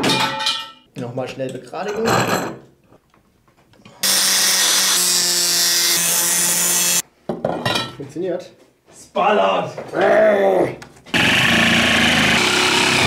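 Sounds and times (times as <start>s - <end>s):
angle grinder grinding metal: 4.0s - 7.0s, 11.1s - 13.0s.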